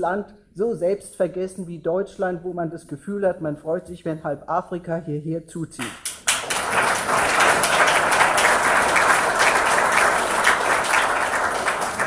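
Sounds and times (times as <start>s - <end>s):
audience applause: 6.0s - 12.0s.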